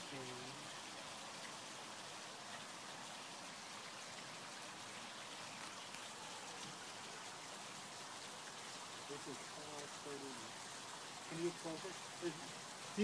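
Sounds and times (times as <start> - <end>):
faint steady hiss: 0.0 - 13.0
tiny ticks: 5.6 - 6.8.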